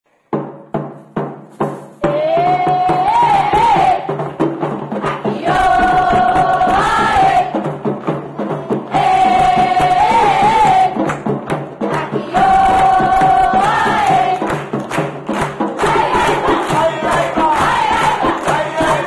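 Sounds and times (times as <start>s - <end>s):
fast rhythmic percussion: 0.3s - 19.0s
children's choir chanting: 2.0s - 4.2s, 5.0s - 7.7s, 8.3s - 11.1s, 11.8s - 14.6s, 15.8s - 19.0s.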